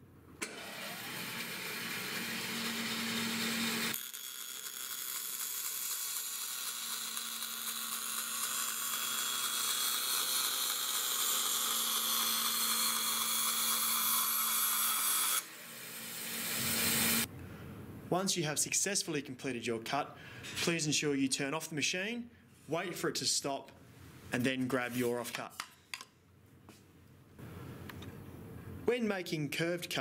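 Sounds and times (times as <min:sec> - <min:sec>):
bandsaw humming: 0:00.4 - 0:17.3
saw blade cutting plywood: 0:00.4 - 0:17.3.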